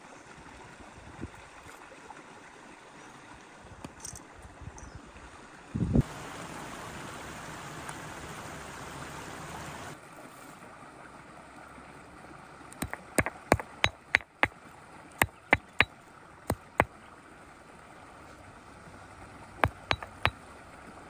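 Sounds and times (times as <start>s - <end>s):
rushing water: 5.1s - 21.0s
sharp clicks and knocks: 12.8s - 14.5s, 15.2s - 15.9s, 19.6s - 20.4s.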